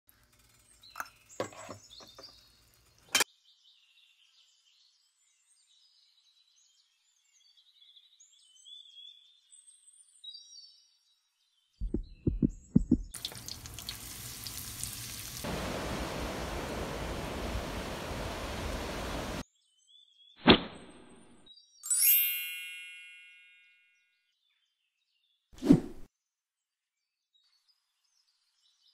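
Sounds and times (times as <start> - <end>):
heavy thumps: 11.8 - 13.2
steady rushing hiss: 13.2 - 19.4.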